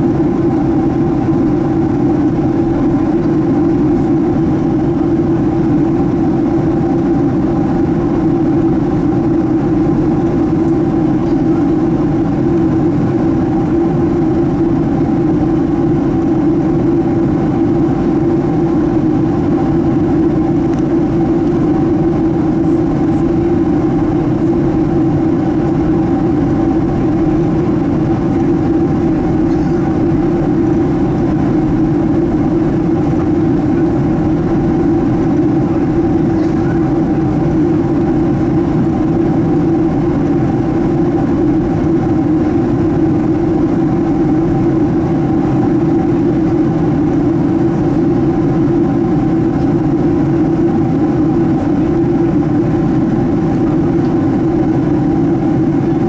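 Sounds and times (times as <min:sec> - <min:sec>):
jet engine drone in cabin: 0:00.0 - 0:56.0.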